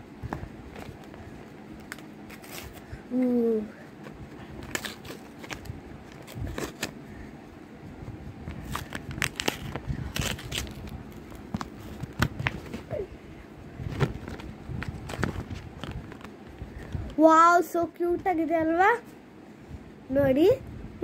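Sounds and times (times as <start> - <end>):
plastic packaging crinkling: 4.6 - 7.0, 8.5 - 12.9, 14.0 - 16.4.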